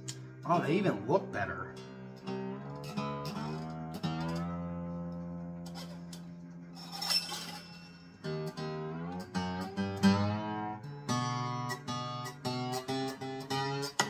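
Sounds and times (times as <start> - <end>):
acoustic guitar strings plucked: 0.0 - 14.0.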